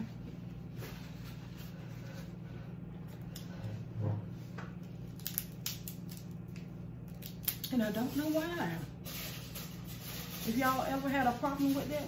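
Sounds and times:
steady low hum: 0:00.0 - 0:12.0
crab shell cracking: 0:05.1 - 0:07.8.

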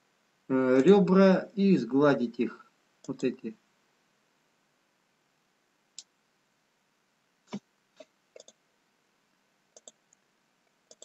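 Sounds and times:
computer mouse clicks: 0:08.4 - 0:08.6, 0:09.7 - 0:10.2.

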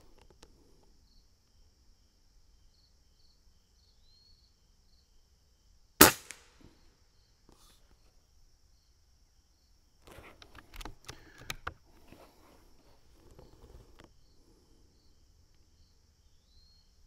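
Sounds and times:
air rifle shot crack: 0:06.0 - 0:06.6.

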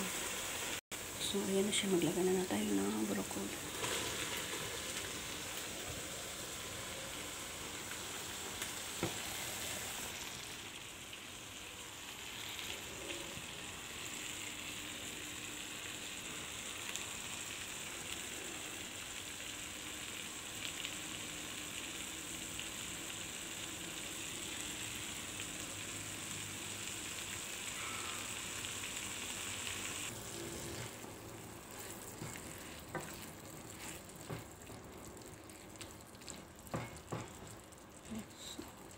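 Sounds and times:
food sizzling in a frying pan: 0:00.0 - 0:38.9
spatula stirring food: 0:30.1 - 0:37.6.

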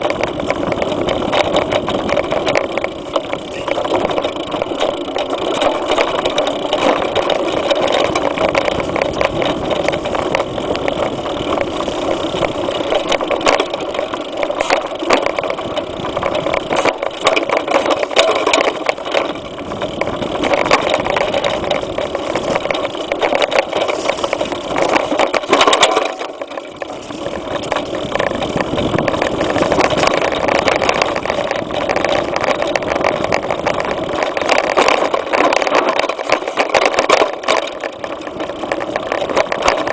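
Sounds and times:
bike rattling over bumps: 0:00.0 - 0:39.9
wind rushing on microphone: 0:05.5 - 0:26.0, 0:26.8 - 0:37.2.

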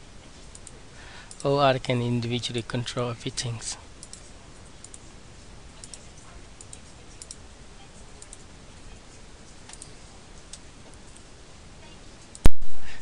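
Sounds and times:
computer mouse clicking: 0:00.5 - 0:01.5, 0:04.0 - 0:05.1, 0:05.8 - 0:06.0, 0:06.6 - 0:07.4, 0:09.6 - 0:11.3.

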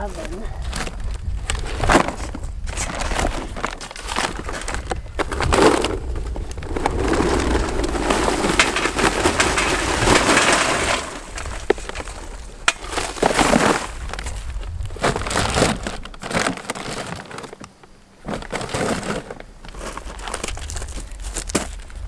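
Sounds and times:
paper bag rustling: 0:00.0 - 0:22.0
charcoal clattering into metal chimney: 0:05.2 - 0:14.3.

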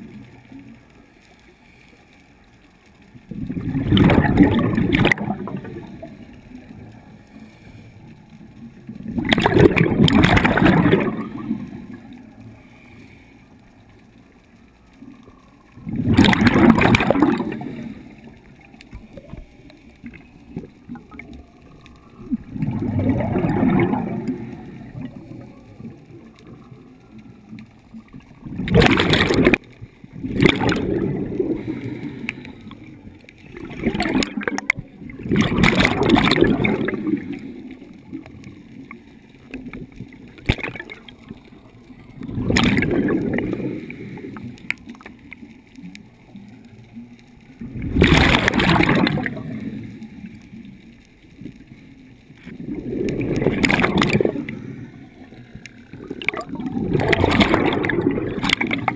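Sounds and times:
exhaled bubbles underwater: 0:00.0 - 0:00.9, 0:03.1 - 0:12.6, 0:14.0 - 0:58.9
regulator inhale hiss: 0:07.2 - 0:08.3, 0:11.6 - 0:13.8, 0:31.4 - 0:33.0, 0:43.4 - 0:44.8.

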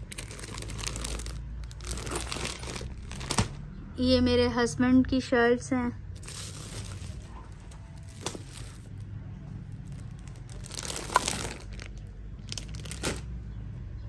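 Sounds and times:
plastic wrappers crinkling: 0:00.0 - 0:03.6, 0:06.2 - 0:09.1, 0:09.8 - 0:13.3.

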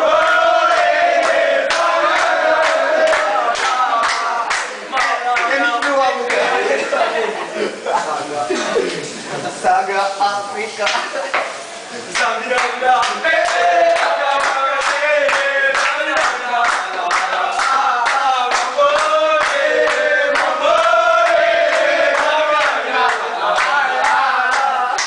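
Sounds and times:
young men singing in unison: 0:00.0 - 0:04.8, 0:12.0 - 0:25.0
rhythmic hand clapping: 0:00.0 - 0:06.8, 0:10.8 - 0:25.0.

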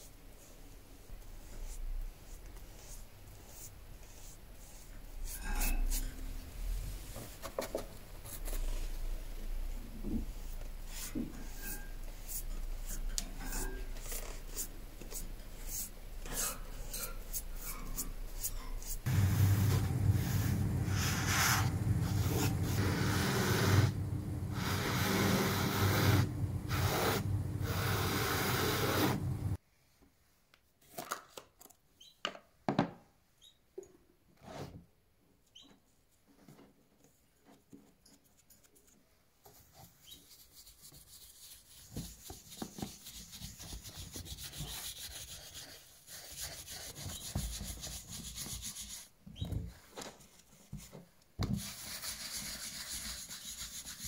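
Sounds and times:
sponge scrubbing leather: 0:19.1 - 0:29.6.

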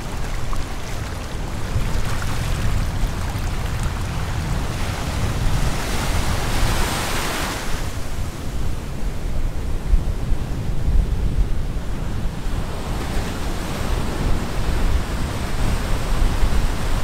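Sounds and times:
wave breaking and washing in: 0:00.0 - 0:09.2
wind rumble on microphone: 0:00.0 - 0:17.0.

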